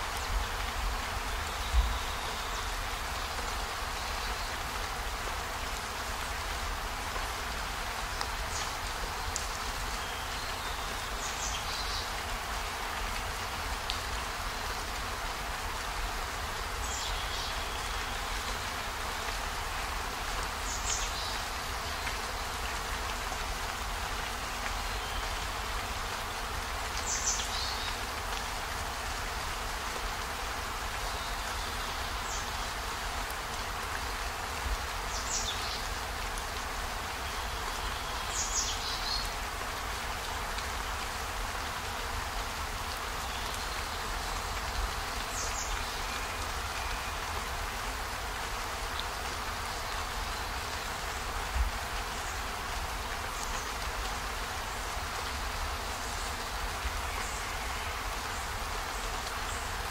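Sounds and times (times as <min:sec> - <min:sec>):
steady rain falling: 0:00.0 - 0:59.9.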